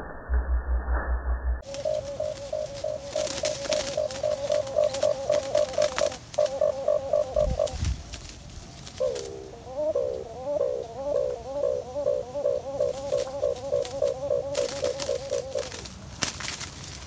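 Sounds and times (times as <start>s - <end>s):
dove hooting: 1.6s - 8.0s, 8.9s - 15.9s.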